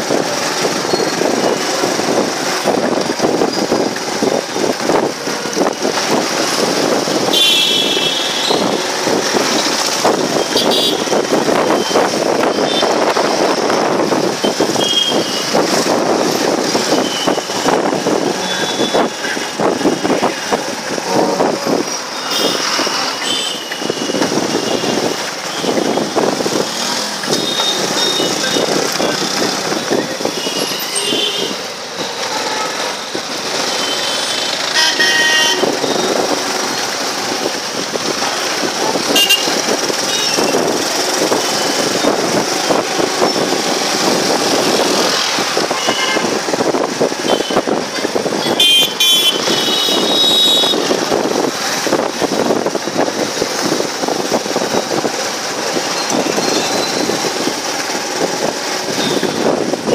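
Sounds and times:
motorcycle and scooter engines: 0:00.0 - 0:59.9
road noise: 0:00.0 - 0:59.9
vehicle horns tooting: 0:07.2 - 0:09.0, 0:10.3 - 0:13.2, 0:14.4 - 0:15.7, 0:16.9 - 0:20.2, 0:20.9 - 0:26.3, 0:27.2 - 0:33.0, 0:33.6 - 0:36.3, 0:39.0 - 0:42.1, 0:44.6 - 0:46.6, 0:47.2 - 0:51.2, 0:58.9 - 0:59.9.

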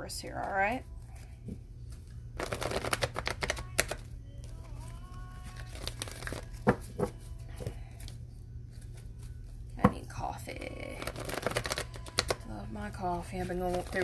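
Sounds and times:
cards being shuffled: 0:01.0 - 0:09.7, 0:10.5 - 0:12.5, 0:13.2 - 0:14.0
cards tapping: 0:02.4 - 0:04.6, 0:05.5 - 0:09.0, 0:11.0 - 0:12.4.

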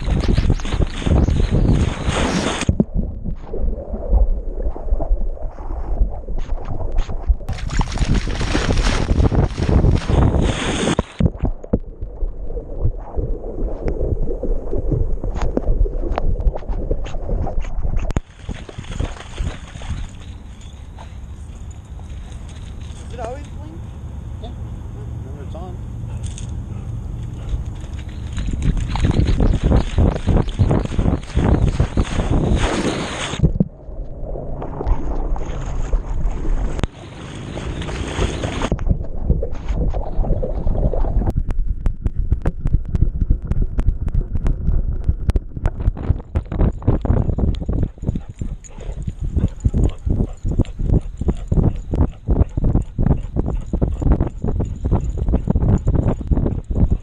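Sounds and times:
muffled sloshing and gurgling water: 0:00.0 - 0:24.1, 0:25.8 - 0:57.0
dog splashing into water: 0:07.5 - 0:11.2, 0:18.2 - 0:20.5, 0:34.9 - 0:38.9.

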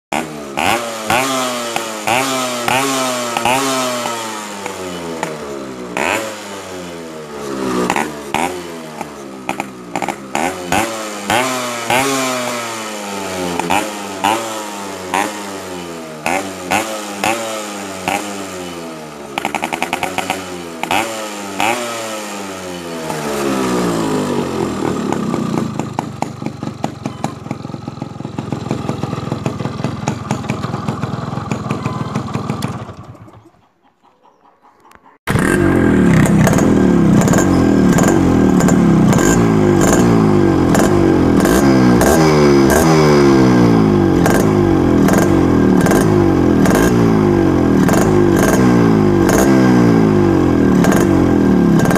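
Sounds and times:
motorcycle engine revving: 0:00.1 - 0:33.5, 0:35.1 - 0:51.9
motorcycle engine idling: 0:00.4 - 0:12.1, 0:18.0 - 0:21.0, 0:22.6 - 0:33.7, 0:35.1 - 0:42.4.

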